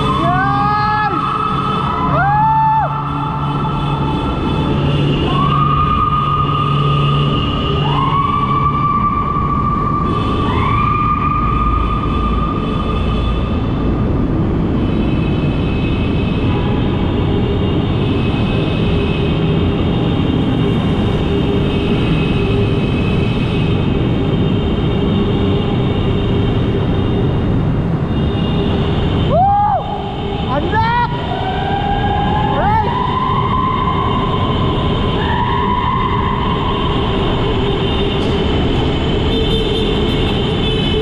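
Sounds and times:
siren-like rising tone: 0:00.0 - 0:13.8, 0:30.9 - 0:39.1
traffic noise in tunnel: 0:00.0 - 0:41.0.

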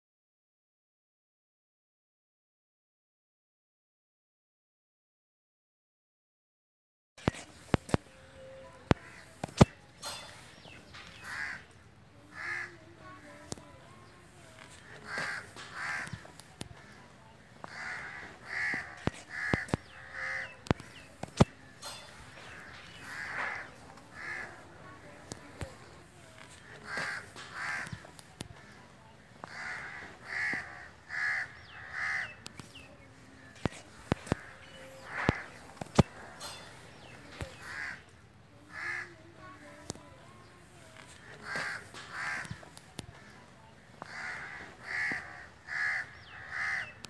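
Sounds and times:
bird cawing: 0:11.1 - 0:11.7, 0:14.7 - 0:21.0, 0:22.4 - 0:24.7, 0:26.5 - 0:32.4, 0:34.3 - 0:38.1, 0:41.3 - 0:47.0.

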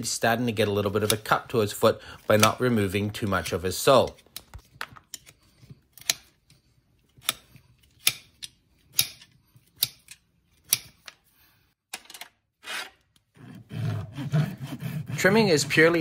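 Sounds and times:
knife scraping hoof: 0:12.6 - 0:16.0.

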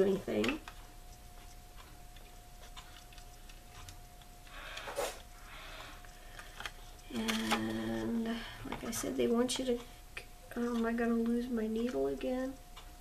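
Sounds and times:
brief scrape: 0:04.9 - 0:05.2.

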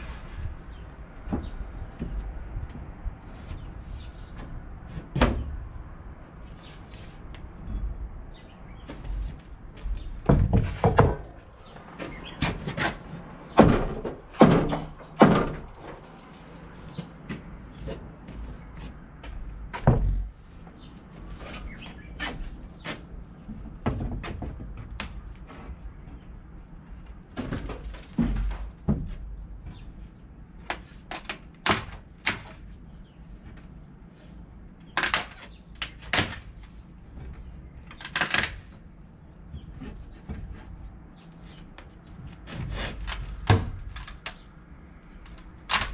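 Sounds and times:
wood scraping: 0:00.0 - 0:45.9
wooden boards knocking: 0:08.8 - 0:16.0.

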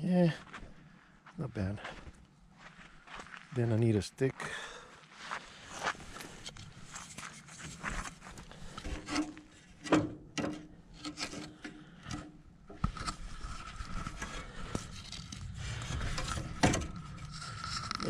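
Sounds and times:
wooden stick scraping on gravel: 0:12.8 - 0:18.0.

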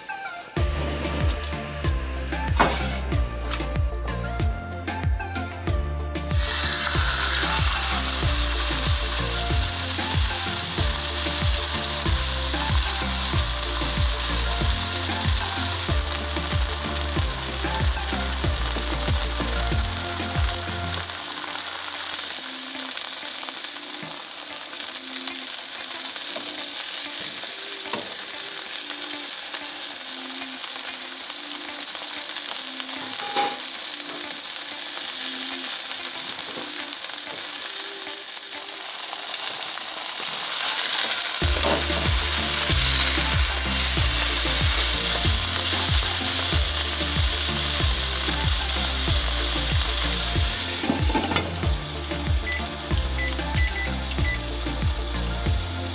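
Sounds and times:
meat sizzling in frying pans: 0:00.0 - 0:55.9
low rhythmic beat: 0:00.5 - 0:21.1, 0:41.4 - 0:55.9.

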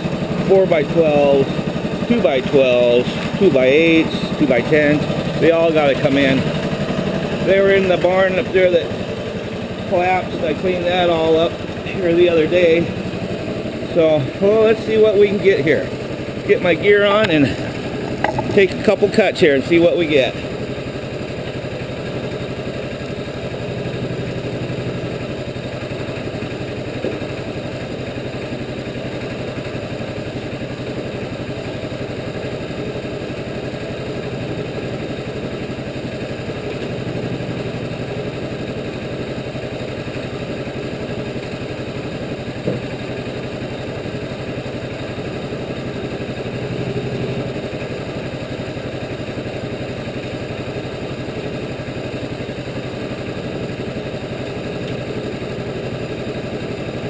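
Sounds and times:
sawmill engine running: 0:00.0 - 0:57.0
brief knocks: 0:18.2 - 0:18.6.

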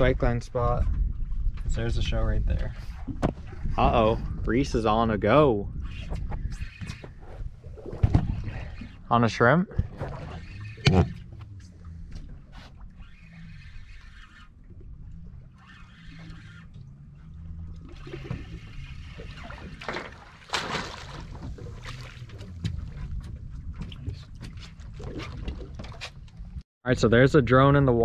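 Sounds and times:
wind rumble on microphone: 0:00.0 - 0:13.9, 0:21.0 - 0:26.6
water sloshing against boat hull: 0:05.7 - 0:26.6.

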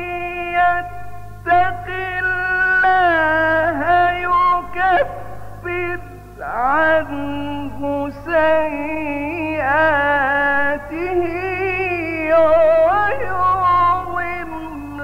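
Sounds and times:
man reciting melodically: 0:00.0 - 0:15.0.

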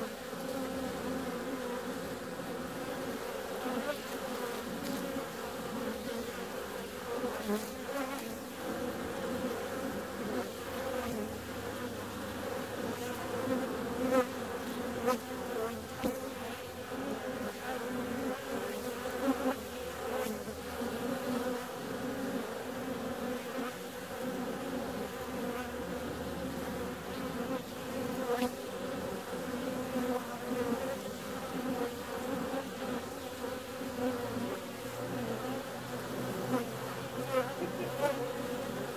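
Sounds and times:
honeybees buzzing: 0:00.0 - 0:38.9.

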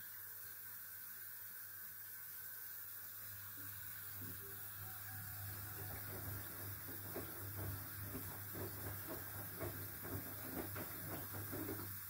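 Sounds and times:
washing machine drum turning: 0:05.4 - 0:12.0
water sloshing: 0:05.8 - 0:12.0.

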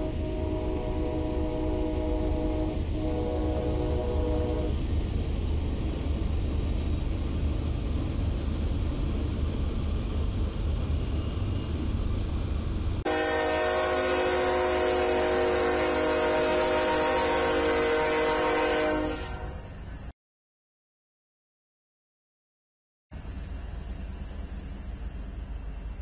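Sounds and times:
locomotive air horn: 0:00.0 - 0:04.8, 0:13.0 - 0:19.8
passing train rumble: 0:00.0 - 0:20.1, 0:23.1 - 0:26.0.

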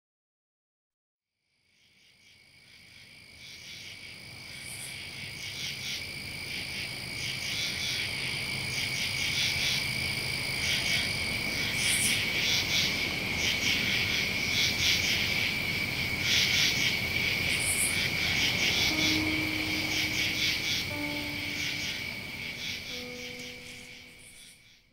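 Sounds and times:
frogs and insects chirring: 0:01.6 - 0:24.8
low held tone: 0:18.5 - 0:24.6.

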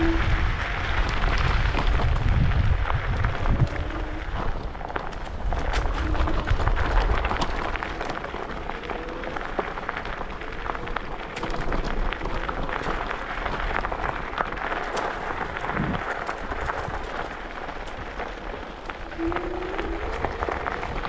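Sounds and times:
faint whine: 0:00.0 - 0:01.5, 0:18.8 - 0:21.0
scooter crackle and rattle: 0:00.0 - 0:21.0
wind rumbling on microphone: 0:00.0 - 0:21.0.

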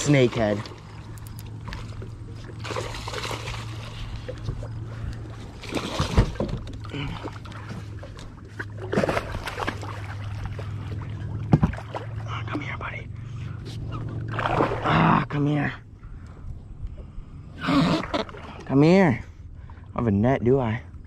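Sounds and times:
water splashing and sloshing: 0:00.0 - 0:20.2
steady low hum: 0:00.0 - 0:21.0.

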